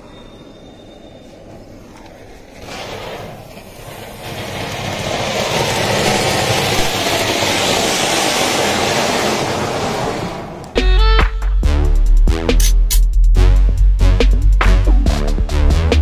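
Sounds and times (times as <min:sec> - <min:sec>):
firework fountain hissing: 0:02.6 - 0:10.4.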